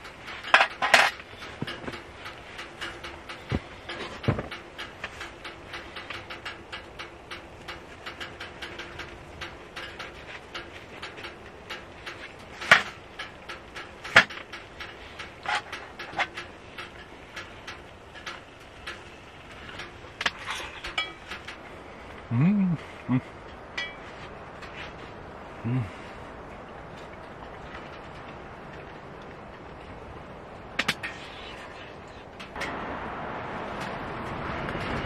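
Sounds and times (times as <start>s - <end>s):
fine crackle of small ticks: 0.0s - 32.8s.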